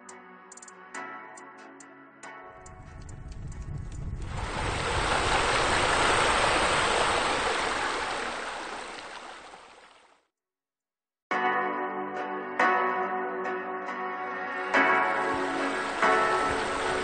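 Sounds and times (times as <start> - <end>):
low rumble: 2.7 - 7.3
rushing water: 4.0 - 10.1, 15.3 - 17.0.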